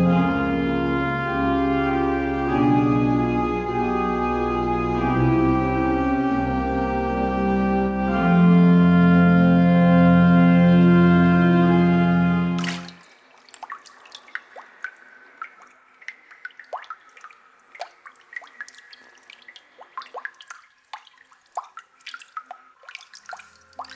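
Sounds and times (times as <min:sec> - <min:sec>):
organ chord: 0:00.0 - 0:12.6
water dripping into water: 0:12.6 - 0:23.9.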